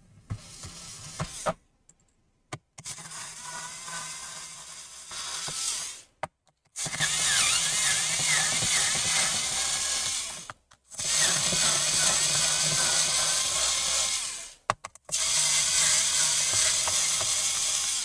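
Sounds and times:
electric screwdriver motor whine: 2.8 - 6.0, 6.8 - 18.0.

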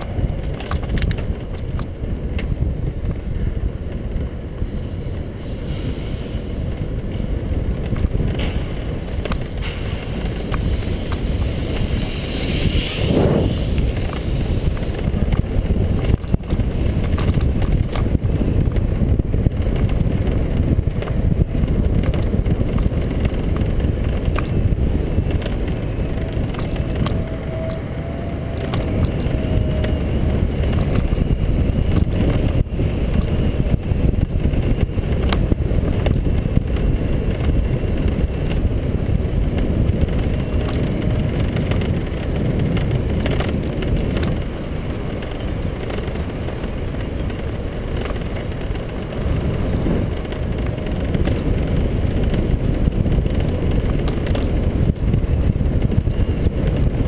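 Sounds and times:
small clicks and rattles: 0.0 - 2.5, 39.5 - 56.9
tyres rolling on asphalt: 0.0 - 57.0
wind rushing on microphone: 0.0 - 57.0.

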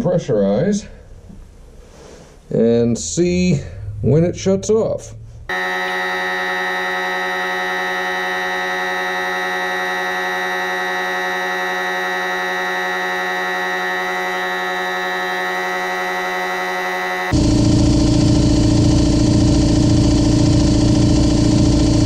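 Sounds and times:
air compressor running: 5.5 - 22.0.

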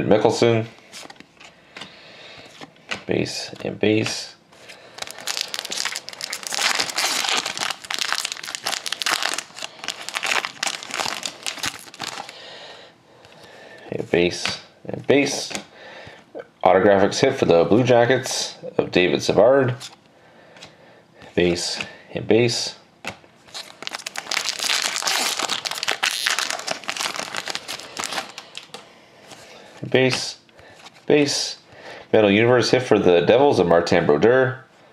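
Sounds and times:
foil wrapper crinkling: 4.8 - 12.4, 23.5 - 28.8.

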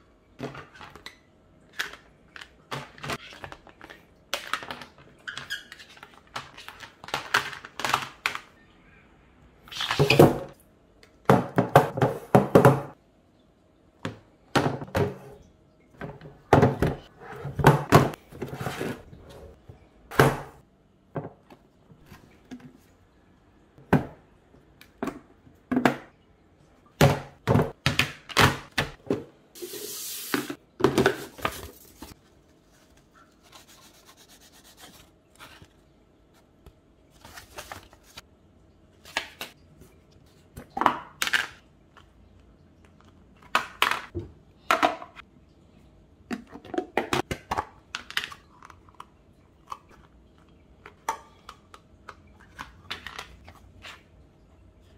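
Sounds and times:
plastic containers knocking on table: 11.3 - 13.0.

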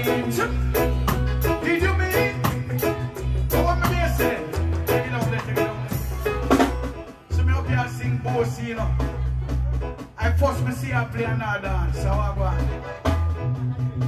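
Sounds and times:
man singing into microphone: 0.0 - 6.3, 7.2 - 9.4, 10.2 - 12.9
reggae backing track: 0.0 - 14.0.

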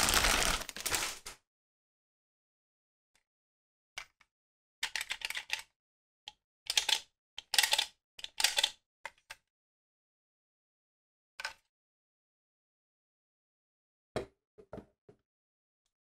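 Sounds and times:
plastic toy clicking: 6.3 - 8.7.

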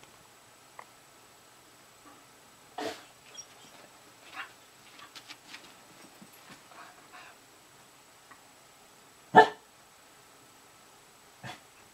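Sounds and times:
dog barking: 9.3 - 9.7.

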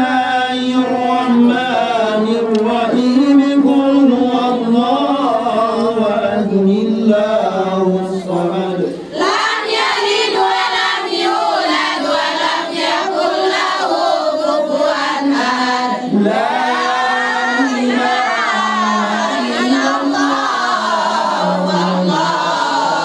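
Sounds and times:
women singing in unison: 9.1 - 23.0.

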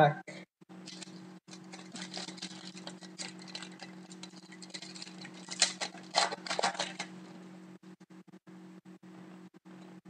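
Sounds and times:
steady low hum: 0.0 - 10.0
foil pack crackling: 0.8 - 7.5.

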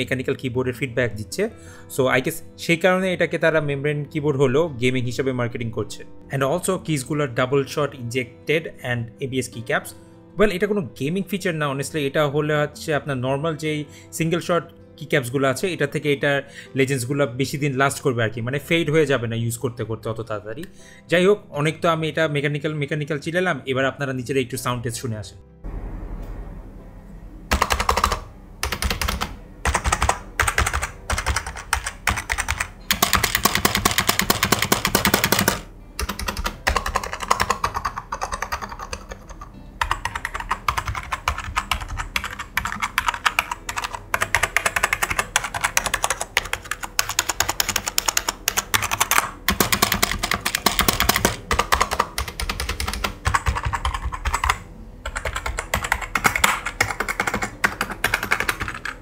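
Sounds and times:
keyboard typing: 27.5 - 59.0.

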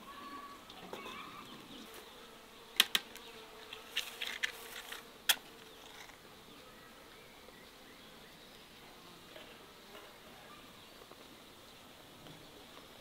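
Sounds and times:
flying insect buzzing: 0.1 - 6.7.

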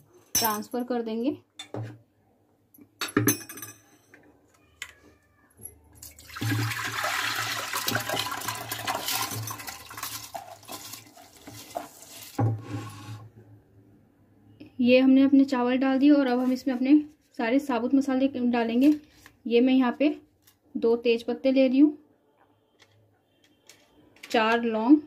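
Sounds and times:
water splashing into pot: 6.1 - 12.4.

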